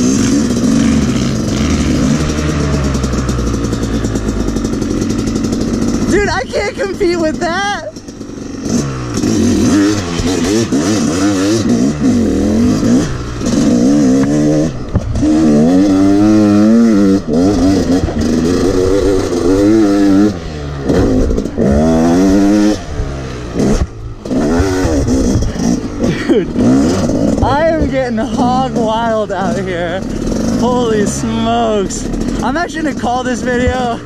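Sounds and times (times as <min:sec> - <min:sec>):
dirt bike engine revving: 0:00.0 - 0:34.0
bike clattering: 0:00.2 - 0:12.2.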